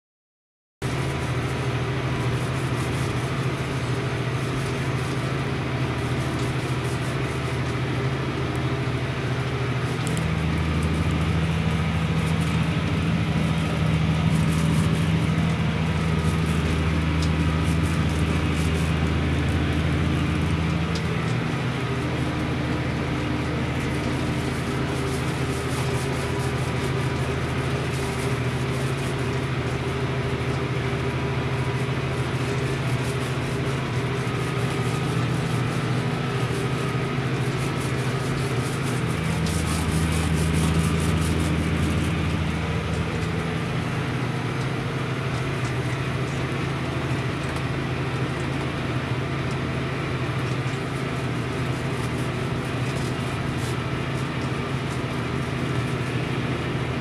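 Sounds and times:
tractor diesel engine under load: 0.8 - 57.0.

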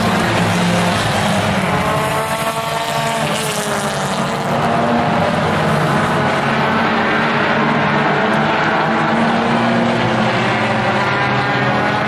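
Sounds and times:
race car engines droning: 0.0 - 12.0.

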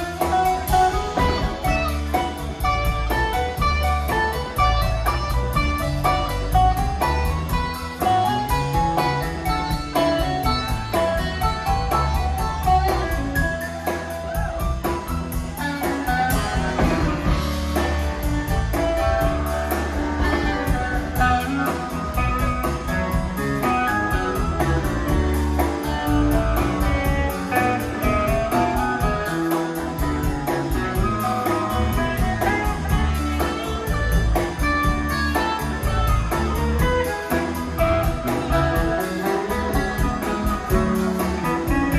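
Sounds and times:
drum kit: 0.0 - 41.9
electric bass: 0.0 - 41.9
electric guitar: 0.0 - 41.9
keyboards: 0.0 - 41.9.

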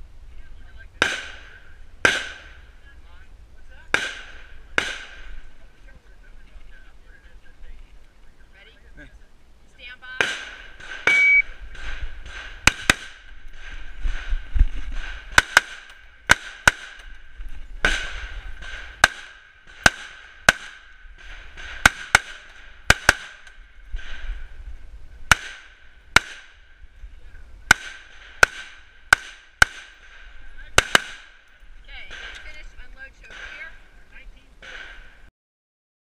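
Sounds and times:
rifle shots: 1.0 - 2.7, 3.9 - 5.6, 10.2 - 24.5, 25.2 - 26.8, 27.7 - 33.8, 34.6 - 35.2
shot timer beep: 11.1 - 11.5.

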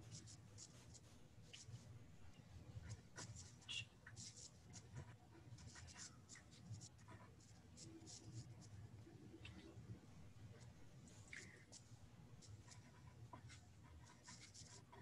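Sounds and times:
faint low hum: 0.0 - 15.0
pen scratching on paper: 2.8 - 8.7, 12.4 - 15.0.

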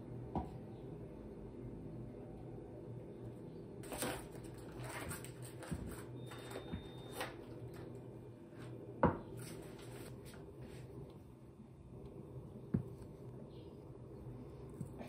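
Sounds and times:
foil wrapper crinkling: 3.8 - 6.1.

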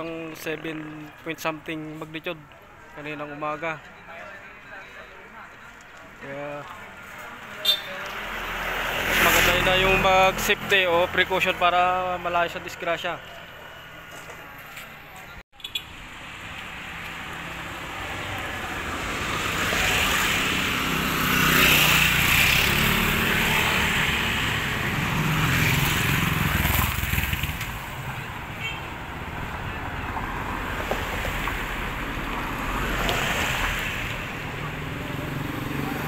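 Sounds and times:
motorcycles passing: 6.7 - 14.2, 15.7 - 36.0.

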